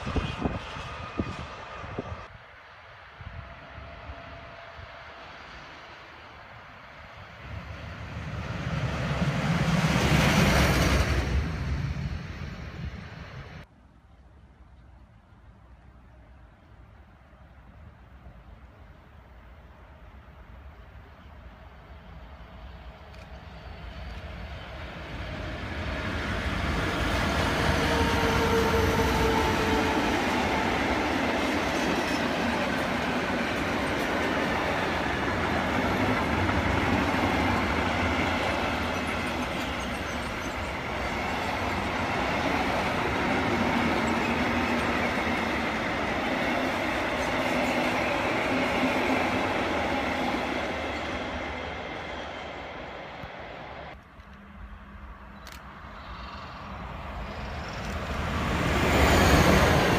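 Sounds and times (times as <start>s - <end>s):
train wheels on rail: 0.0s - 13.7s, 20.7s - 54.7s, 55.3s - 59.9s.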